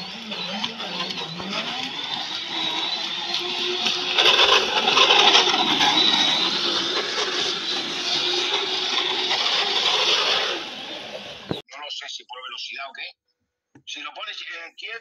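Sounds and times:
electric motor whining: 0.0s - 11.6s.

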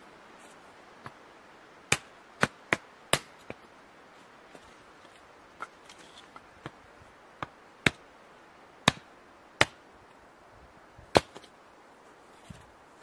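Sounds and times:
hatchet chopping firewood: 1.9s - 3.6s, 7.4s - 8.0s, 8.8s - 9.8s, 11.1s - 11.5s.

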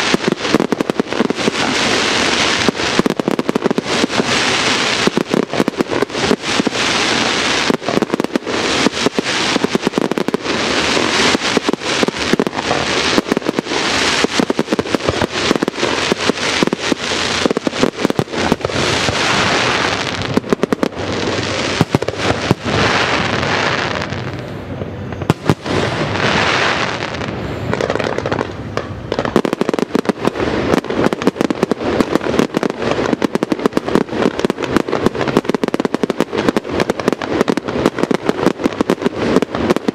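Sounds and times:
fireworks launching and bursting: 0.0s - 39.9s.

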